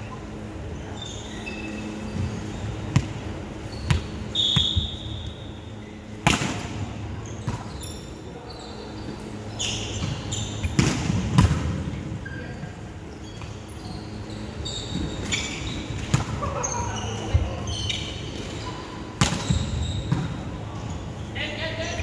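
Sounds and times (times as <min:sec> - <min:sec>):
sneaker squeaks on floor: 0:01.0 - 0:05.5, 0:07.2 - 0:10.8, 0:12.2 - 0:20.5
volleyball slaps: 0:06.2 - 0:06.8, 0:10.6 - 0:11.8, 0:19.2 - 0:20.4.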